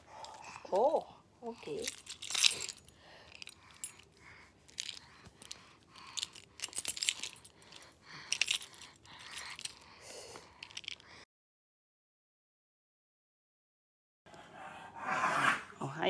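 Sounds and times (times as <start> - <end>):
metal keys jangling: 1.7 - 4.1, 4.7 - 9.9.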